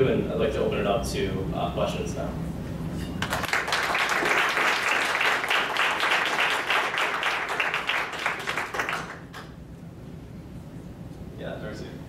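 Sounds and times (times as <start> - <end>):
audience applauding: 3.2 - 9.5.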